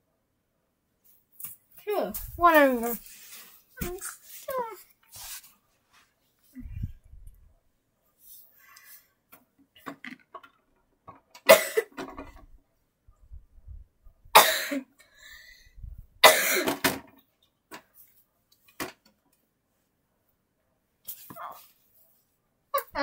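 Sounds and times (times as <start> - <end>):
rustling: 1.0 - 7.5
person coughing: 11.5 - 12.0, 14.4 - 14.9, 16.2 - 16.8.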